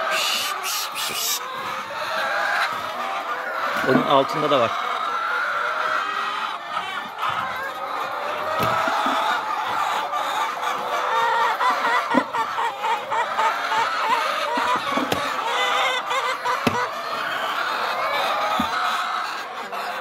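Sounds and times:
hens clucking: 0.0 - 20.0
knocks of metal nest boxes: 14.0 - 17.5, 18.2 - 18.9.

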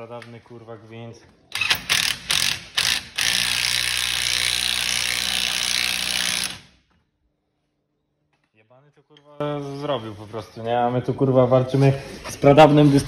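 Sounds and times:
cordless power tool driving fastener: 1.5 - 6.8.

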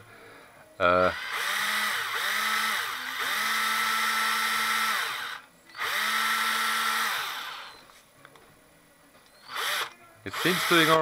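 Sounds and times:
power drill motor running: 1.0 - 7.8, 9.4 - 11.0.

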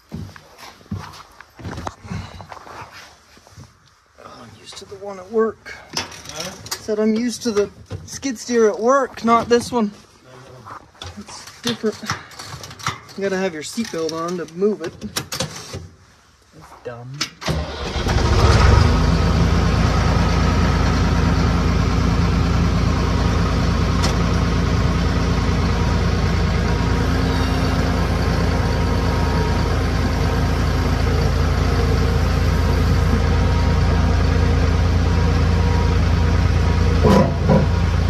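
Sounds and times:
skid steer engine running: 17.6 - 38.0.

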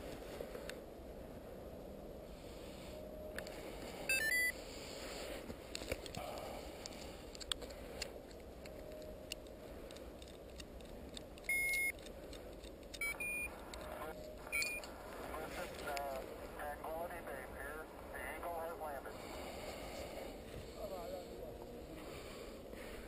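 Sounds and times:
variometer electronic beeps: 4.1 - 4.6, 11.5 - 12.0, 13.0 - 14.9.

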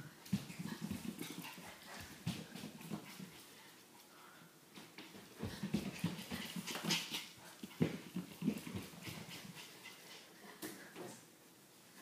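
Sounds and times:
puppy paws on floor: 0.2 - 3.6, 4.7 - 11.2
person running on hardwood floor: 5.4 - 6.9.

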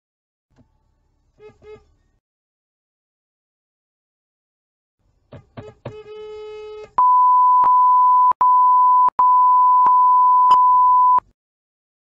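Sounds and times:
car horn: 1.4 - 1.9, 5.6 - 7.0
censor bleep tone: 7.0 - 11.2.

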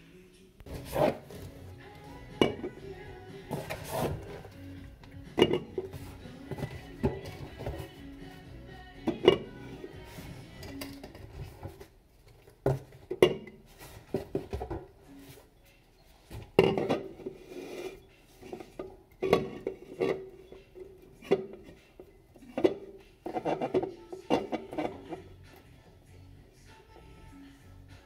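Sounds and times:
metal cans knocking and clinking: 2.4 - 2.8, 5.3 - 5.9, 16.6 - 17.2, 18.5 - 20.4.

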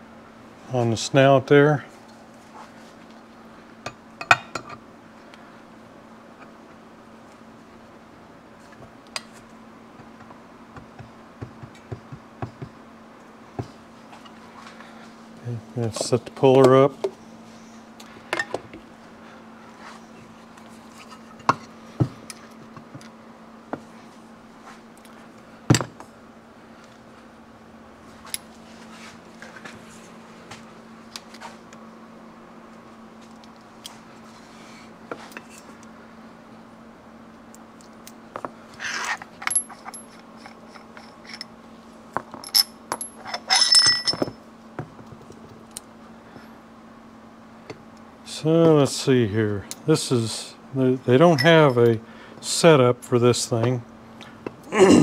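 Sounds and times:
steady low hum: 0.0 - 55.0
ringing metal clinks: 42.5 - 44.4.

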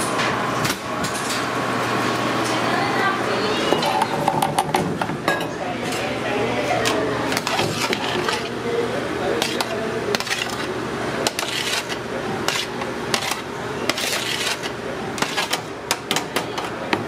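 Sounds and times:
kitchen background noise: 0.0 - 17.0
metal spoon scraping sheet pan: 6.8 - 8.6, 9.4 - 15.7.

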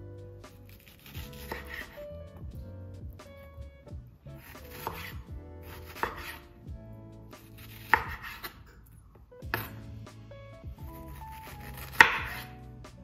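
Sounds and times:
knife cutting on cutting board: 0.7 - 2.0, 4.4 - 6.5, 7.4 - 8.6, 9.5 - 9.8, 11.0 - 12.6.

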